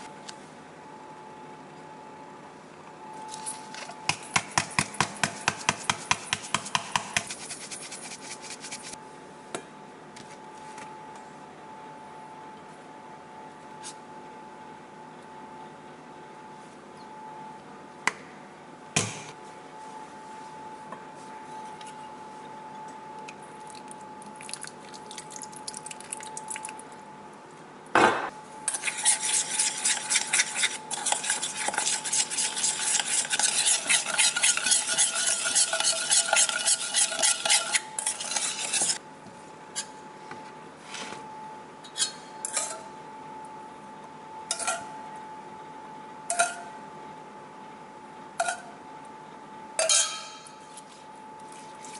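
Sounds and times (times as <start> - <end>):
faint steady hum: 0.0 - 51.9
metal spoon scraping steel bowl: 28.7 - 39.0, 44.5 - 44.9.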